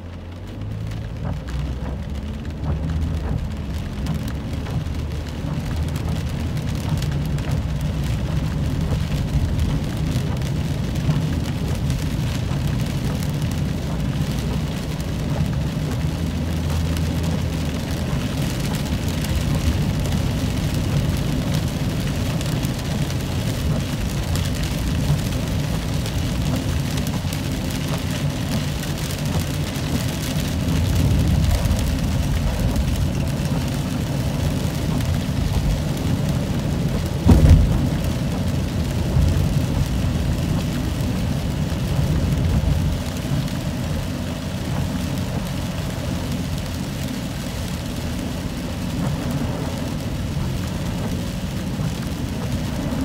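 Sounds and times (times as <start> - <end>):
rain on car windshield: 0.0 - 53.0
road and engine rumble: 0.0 - 53.0.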